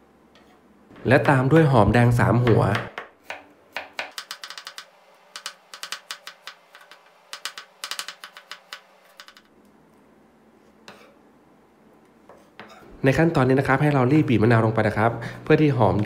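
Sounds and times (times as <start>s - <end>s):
knife tapping on wooden board: 2.4s - 9.4s.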